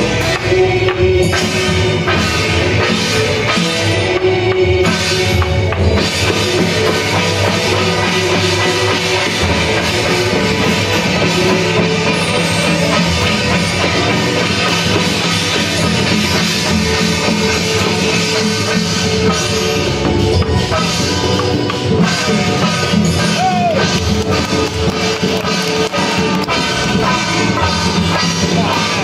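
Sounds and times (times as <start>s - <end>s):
cymbals clashing: 0.0s - 29.0s
hand drums: 0.0s - 29.0s.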